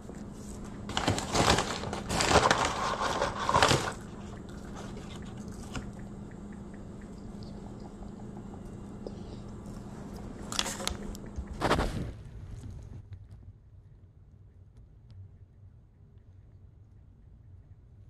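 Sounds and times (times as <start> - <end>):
paper bag rustling: 0.0 - 5.9, 10.5 - 11.0
faint steady hum: 0.0 - 18.0.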